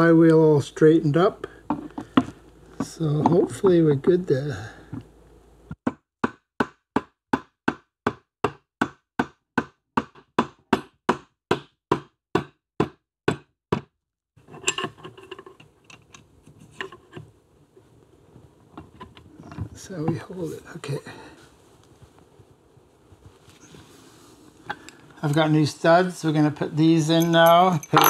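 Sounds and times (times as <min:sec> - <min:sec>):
metal parts clinking: 0:14.5 - 0:17.0, 0:27.0 - 0:28.0.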